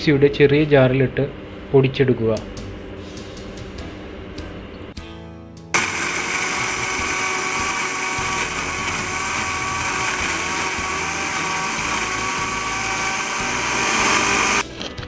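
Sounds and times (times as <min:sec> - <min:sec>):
mixer grinder motor whining: 0:05.8 - 0:14.6.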